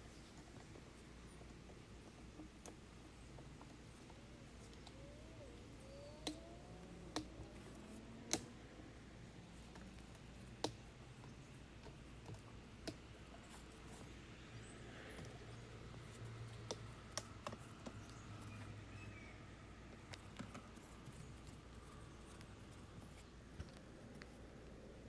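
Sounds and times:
sharp clicks and taps: 6.1s - 8.5s, 16.2s - 18.2s.

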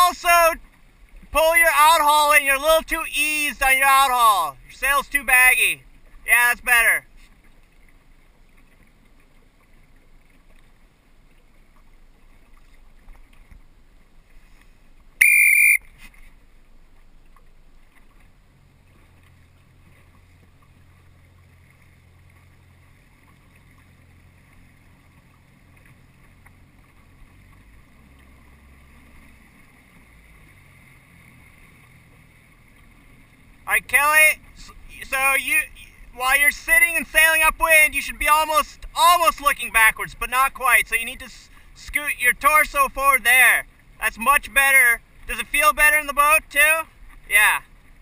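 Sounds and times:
boat motor droning: 0.0s - 48.0s
brief shrill tone: 15.2s - 15.9s.

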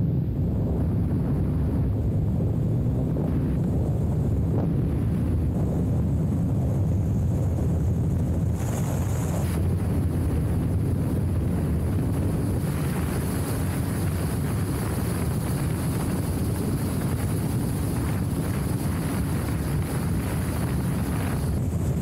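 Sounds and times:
wind noise on microphone: 0.0s - 22.0s
tyres on loose gravel: 7.8s - 9.8s.

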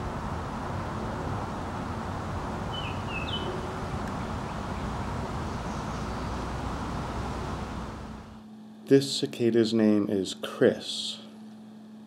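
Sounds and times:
cicadas droning chorus: 0.0s - 8.4s.

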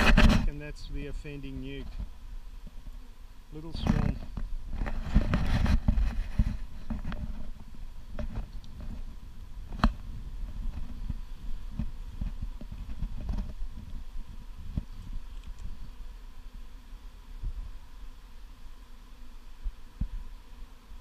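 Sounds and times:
wind rumbling on microphone: 0.0s - 3.0s, 3.6s - 16.7s
footsteps in grass: 3.6s - 15.8s.

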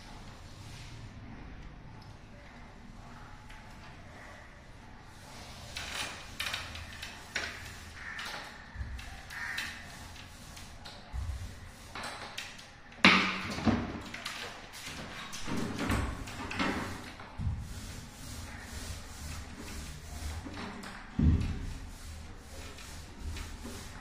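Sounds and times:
paint roller hissing: 5.0s - 12.6s, 14.5s - 24.0s.

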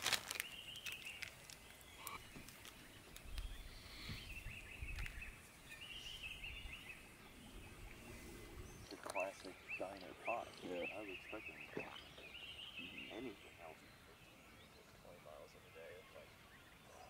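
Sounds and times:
faint clicks: 8.8s - 9.6s.

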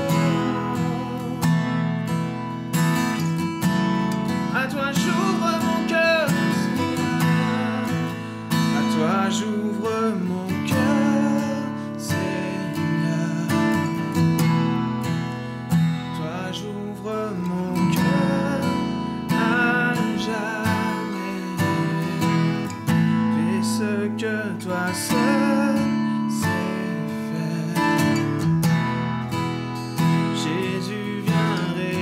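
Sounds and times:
man's voice: 0.0s - 1.6s, 4.3s - 14.1s, 16.1s - 22.6s, 23.3s - 28.4s, 30.3s - 32.0s
acoustic guitar strumming: 0.0s - 32.0s.

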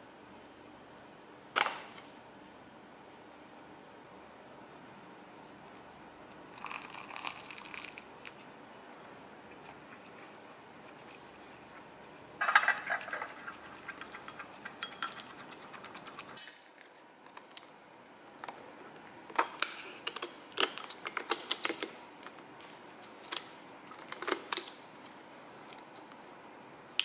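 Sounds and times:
wooden utensil stirring in glass bowl: 9.5s - 16.4s.

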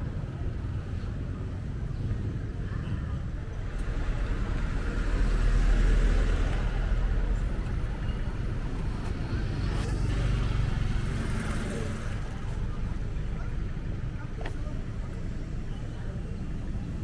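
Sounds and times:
traffic passing: 0.0s - 17.0s
motorcycles driving past: 9.1s - 12.5s.

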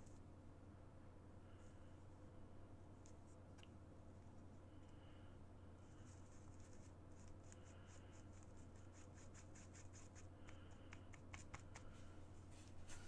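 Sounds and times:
low steady hum: 0.0s - 13.0s
paintbrush scratching on palette: 5.9s - 11.9s.

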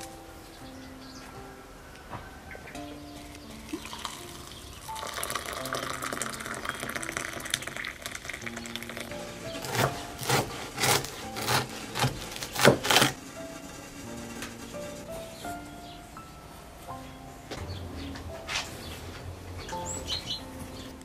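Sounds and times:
soft background music: 0.0s - 21.0s
water pouring into a glass mug: 3.7s - 9.1s
knife sawing bread crust: 9.6s - 13.2s.

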